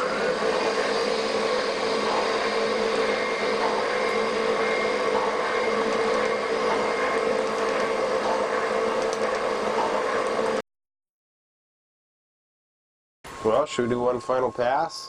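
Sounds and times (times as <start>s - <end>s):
metal shaper humming: 0.0s - 10.6s.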